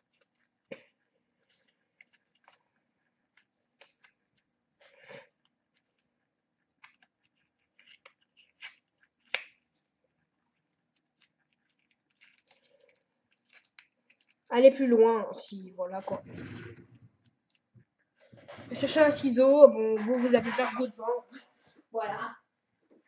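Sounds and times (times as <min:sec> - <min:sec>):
packaging crinkling and clicking: 0:06.8 - 0:09.9, 0:10.9 - 0:14.5.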